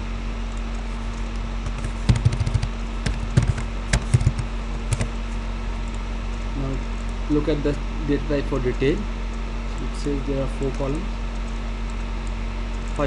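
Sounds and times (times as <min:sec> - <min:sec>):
low electrical hum: 0:00.0 - 0:13.0
keyboard key clicks: 0:01.6 - 0:05.1.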